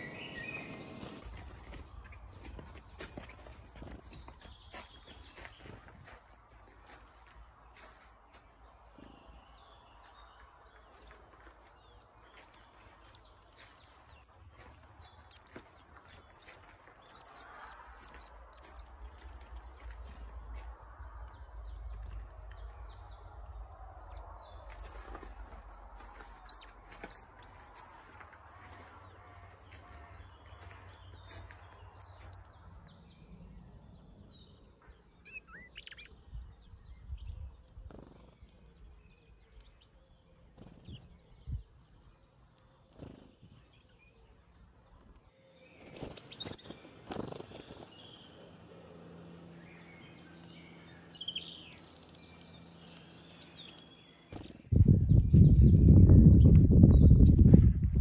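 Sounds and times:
birds chirping and calling: 0:00.0 - 0:06.2, 0:09.0 - 0:23.6, 0:24.6 - 0:58.0
low rumble on microphone: 0:52.2 - 0:58.0.

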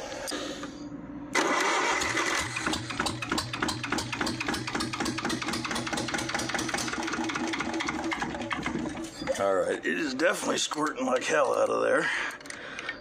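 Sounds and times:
diesel engine clattering: 0:01.4 - 0:09.4.

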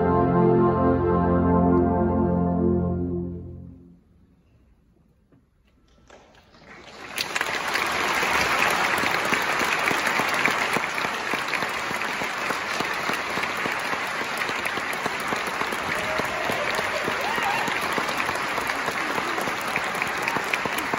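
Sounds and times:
audience applause: 0:06.1 - 0:20.9.

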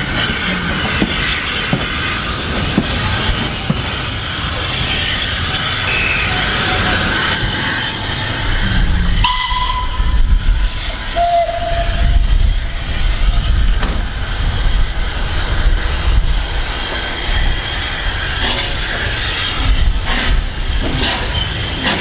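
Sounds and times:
low rumble of train: 0:00.0 - 0:22.0.

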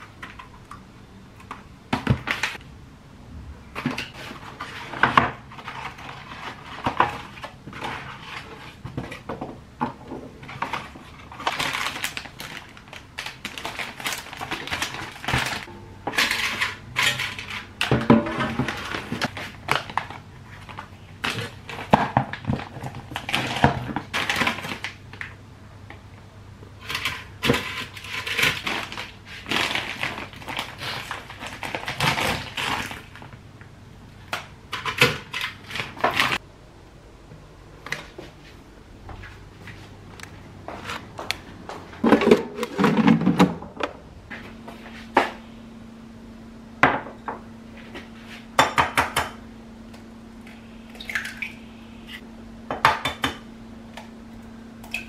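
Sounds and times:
plastic packaging rustling: 0:03.8 - 0:09.3, 0:10.3 - 0:25.4, 0:26.8 - 0:33.4.

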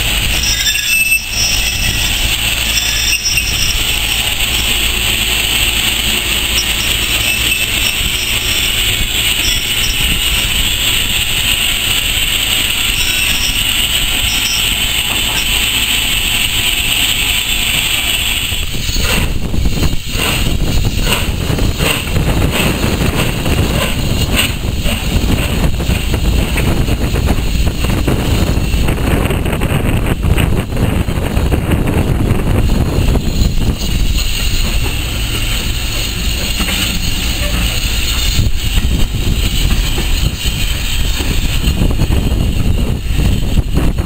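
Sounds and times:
bursts of escaping steam: 0:00.0 - 0:44.0
steam locomotive hissing: 0:00.0 - 0:44.0
wind buffeting microphone: 0:06.0 - 0:15.3, 0:17.4 - 0:44.0.

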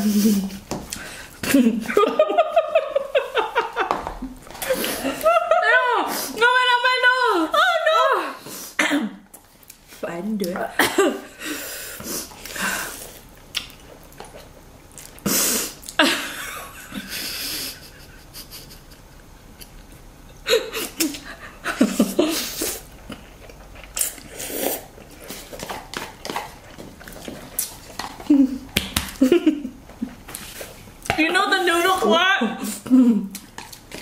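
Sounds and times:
breathing: 0:00.0 - 0:01.4, 0:11.4 - 0:13.1
people slurping noodles: 0:22.2 - 0:26.6.

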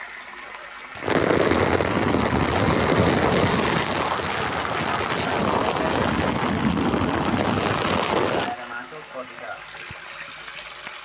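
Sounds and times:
shower water spraying on plastic: 0:01.0 - 0:08.9.

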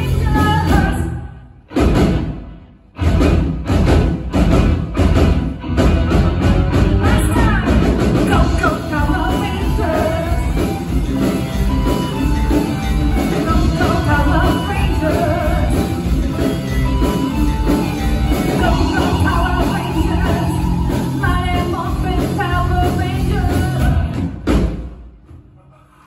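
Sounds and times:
bass guitar: 0:00.0 - 0:24.6
drums: 0:00.0 - 0:26.0
electric guitar: 0:03.0 - 0:24.2
person singing: 0:07.0 - 0:10.9, 0:13.1 - 0:16.4, 0:18.2 - 0:24.2
keyboard: 0:08.4 - 0:24.2.

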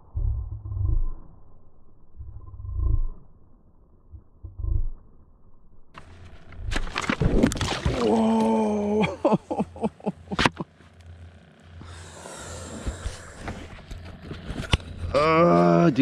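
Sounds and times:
fish thrashing and splashing: 0:06.0 - 0:08.7
person groaning: 0:07.9 - 0:09.8, 0:15.1 - 0:15.9.

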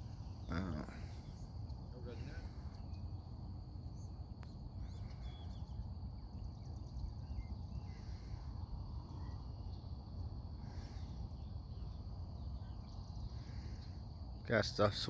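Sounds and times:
insects droning: 0:00.0 - 0:15.0
bird chirps: 0:03.9 - 0:08.5.

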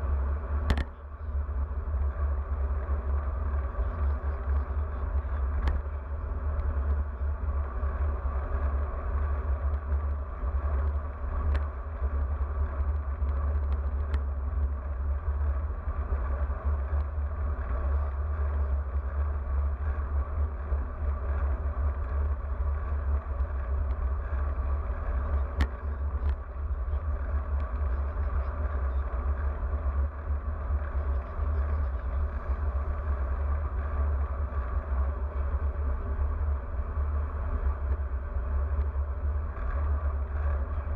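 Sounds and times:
faint clicks: 0:00.6 - 0:01.0, 0:05.4 - 0:05.9, 0:12.7 - 0:14.7, 0:23.4 - 0:26.5.

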